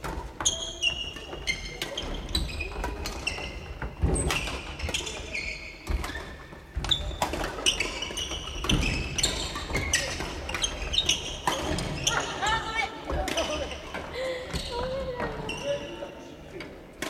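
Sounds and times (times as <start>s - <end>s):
shoes squeaking on wooden floor: 0.4s - 12.8s.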